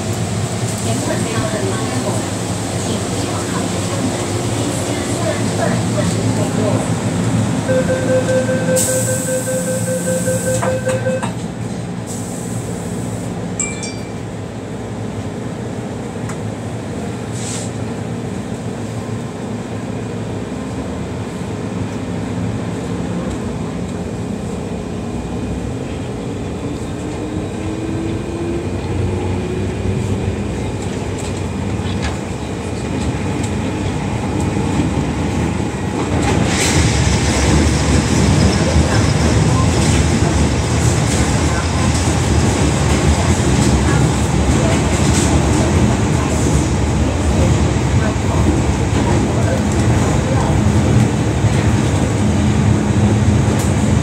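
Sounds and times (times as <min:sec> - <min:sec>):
train running noise: 0:00.0 - 0:54.0
door-closing warning beeps: 0:07.7 - 0:11.4.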